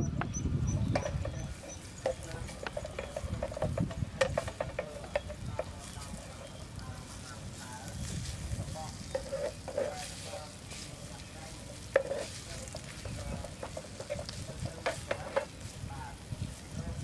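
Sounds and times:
spatula scraping and tapping pan: 0.2 - 17.0
ginger sizzling in oil: 1.0 - 17.0.

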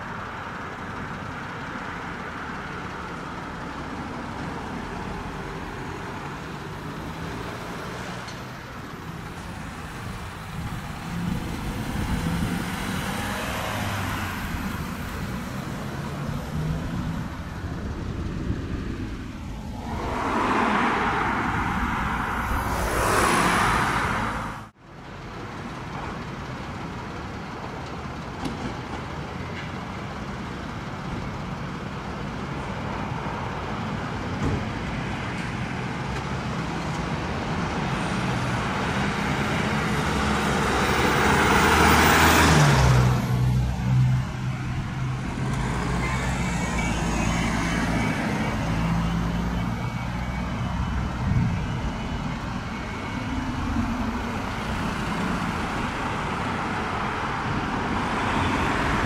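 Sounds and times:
diesel engines running: 0.0 - 59.0
vehicle passing by: 9.8 - 24.7, 39.1 - 59.0.

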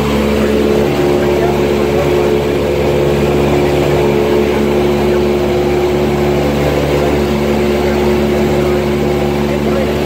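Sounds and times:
light aircraft engine droning: 0.0 - 10.0.

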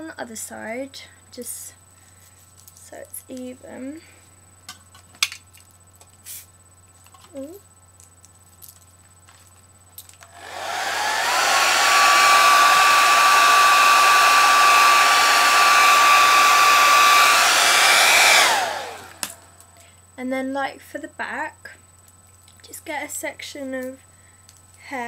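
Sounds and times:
hair dryer blowing: 10.2 - 19.5.

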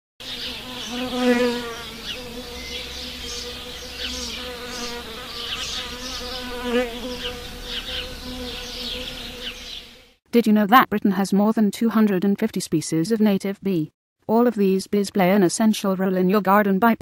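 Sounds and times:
bee buzzing in flight: 0.2 - 10.2.

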